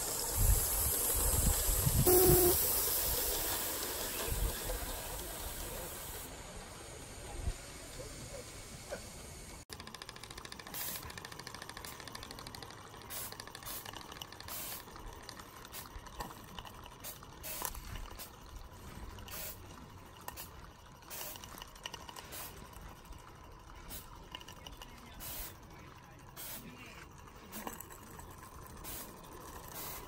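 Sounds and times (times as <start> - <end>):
steam hissing: 0.0 - 9.7, 10.6 - 12.1, 13.0 - 15.0, 17.0 - 18.3, 18.9 - 19.6, 20.3 - 21.5, 22.2 - 22.7, 25.0 - 27.9, 28.6 - 30.0
locomotive exhaust puffs: 0.0 - 30.0.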